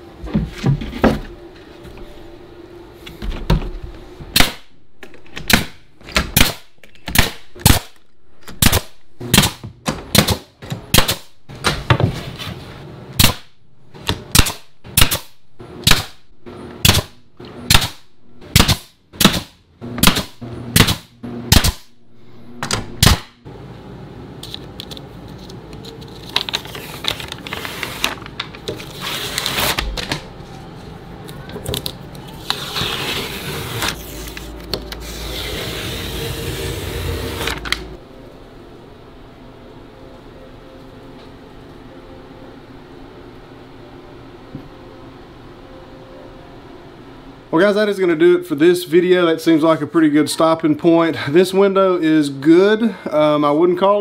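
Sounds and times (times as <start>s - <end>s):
steady mechanical noise: 0.0s - 54.0s
nail gun shots: 4.3s - 4.7s, 5.5s - 8.0s, 8.6s - 11.3s, 13.2s - 13.5s, 14.3s - 16.2s, 16.8s - 21.9s, 22.6s - 23.4s.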